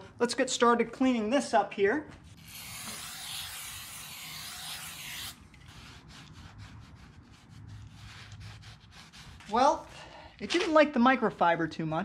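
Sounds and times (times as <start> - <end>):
cloth rubbing on metal: 2.3 - 9.9.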